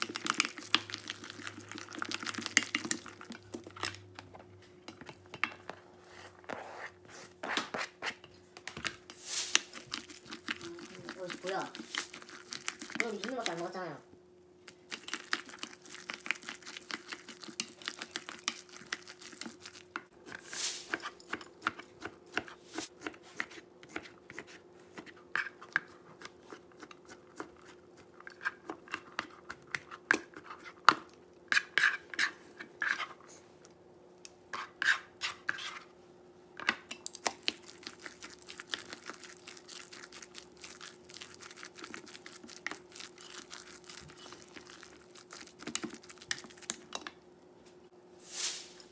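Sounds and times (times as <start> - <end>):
spatula scraping a metal bowl: 34.5 - 35.9.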